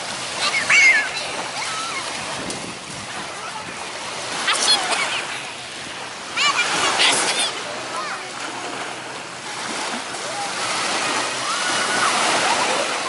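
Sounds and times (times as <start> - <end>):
waves breaking on a beach: 0.0 - 13.0
children calling out: 0.3 - 2.2, 6.3 - 8.5, 10.2 - 13.0.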